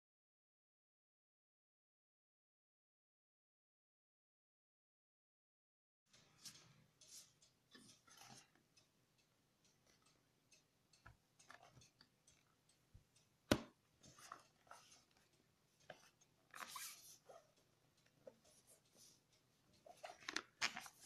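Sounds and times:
laptop handling rustles and taps: 19.9s - 21.0s.

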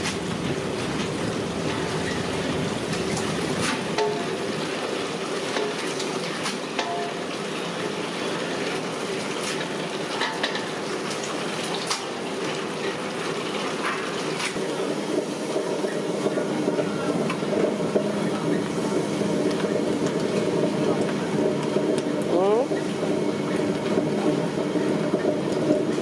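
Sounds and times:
kitchen background noise: 0.0s - 26.0s.

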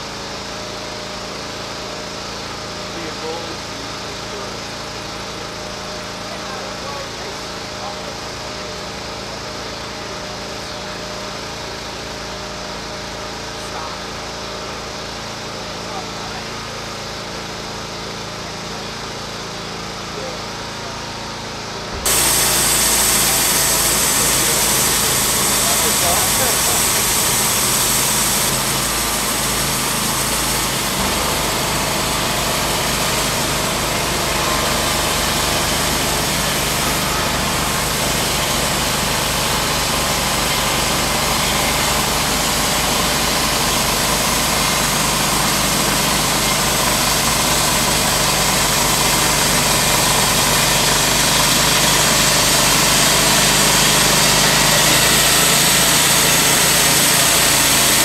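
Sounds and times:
bandsaw cutting log: 21.9s - 58.0s.

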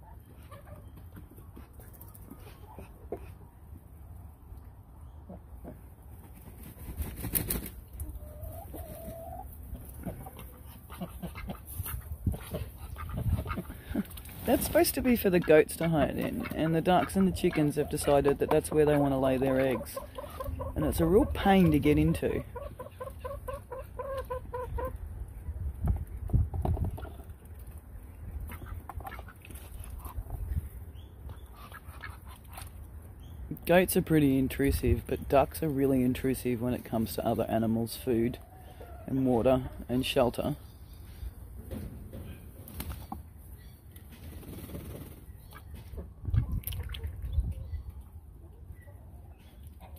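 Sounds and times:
chicken clucking: 0.0s - 3.6s, 5.3s - 25.0s
ducks quacking: 8.2s - 24.9s, 28.4s - 30.3s.

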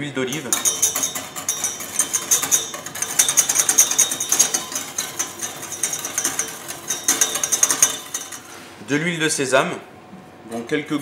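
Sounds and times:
whisk rattling in metal bowl: 0.3s - 8.6s.

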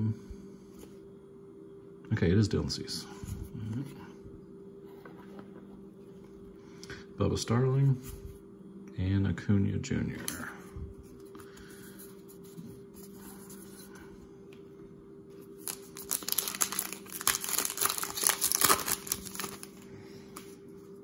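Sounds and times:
wrapper tearing and crinkling: 15.5s - 19.8s.

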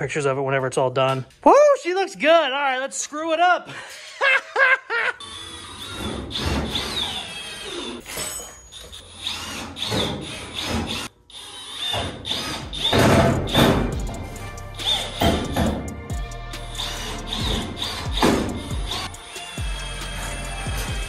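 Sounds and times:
high squeal of screws biting metal: 5.2s - 14.2s, 14.8s - 15.9s, 16.5s - 21.0s
power drill driving screws into metal: 5.4s - 13.9s, 16.8s - 20.9s.

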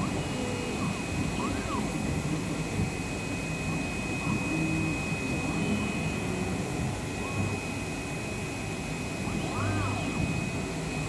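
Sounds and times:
high whine: 0.0s - 11.0s
machine drone: 0.0s - 11.0s
plotter motor tones: 0.0s - 11.0s.

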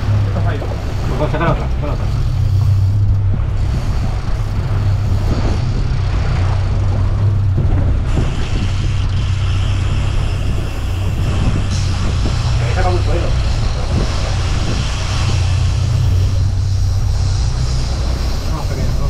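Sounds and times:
boat engine low drone: 0.0s - 19.0s
higher hiss: 8.1s - 19.0s.

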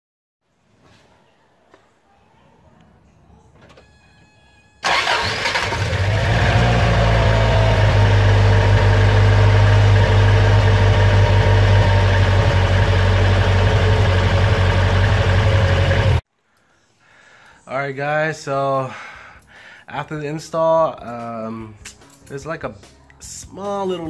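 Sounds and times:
car engine idling: 4.8s - 16.2s.

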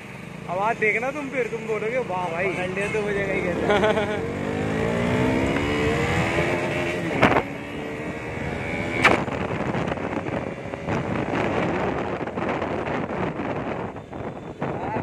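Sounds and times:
motorcycle engine accelerating: 3.2s - 14.0s
wind rushing over microphone: 4.7s - 15.0s
loud thumps: 9.0s - 9.9s.

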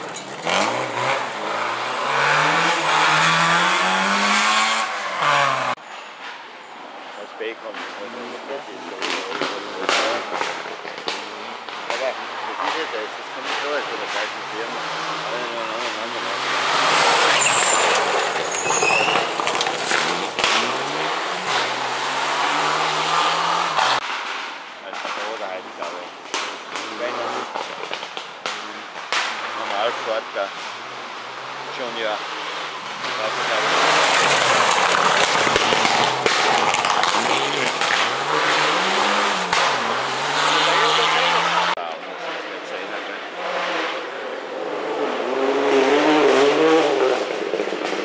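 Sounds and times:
rally car engine accelerating: 0.0s - 5.8s, 8.9s - 24.1s, 29.2s - 48.0s
sharp cracks: 8.8s - 14.3s, 16.5s - 29.9s, 32.6s - 40.3s.

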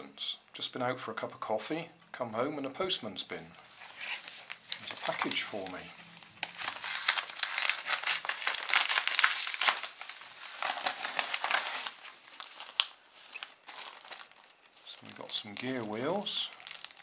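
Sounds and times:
contents rustling: 3.6s - 17.0s
paper envelope crinkling: 3.7s - 17.0s.

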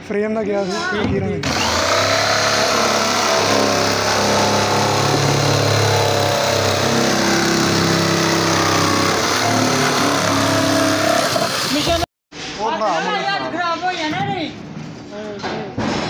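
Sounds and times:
jigsaw cutting plastic: 1.4s - 12.0s.

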